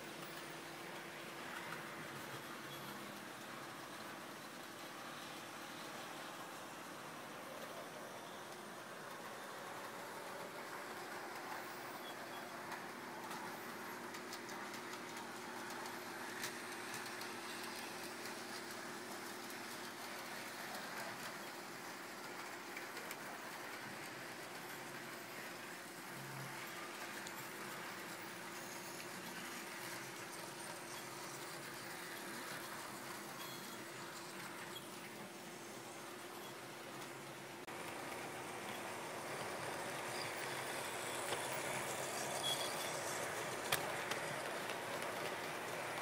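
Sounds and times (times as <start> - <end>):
wheels running on rails: 0.1 - 46.0
model train motor hum: 37.8 - 46.0.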